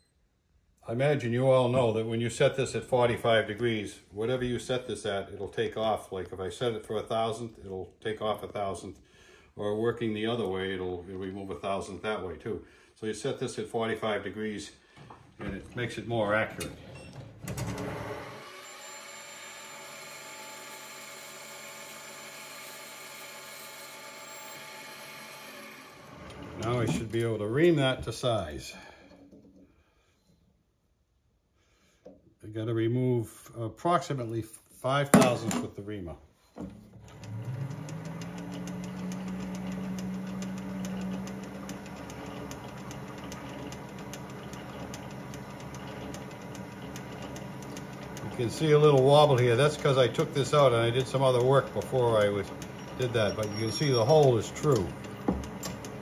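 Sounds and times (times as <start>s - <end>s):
metal lathe whining: 17.6s - 27.2s, 36.7s - 56.0s.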